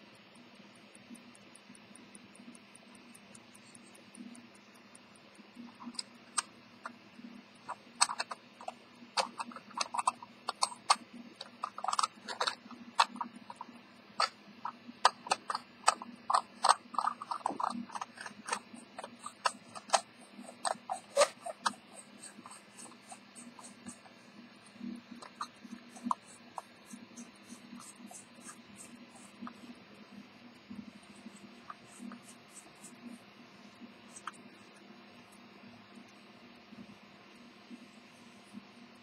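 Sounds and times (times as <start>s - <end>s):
fingernails scratching cloth pad: 7.7s - 24.2s.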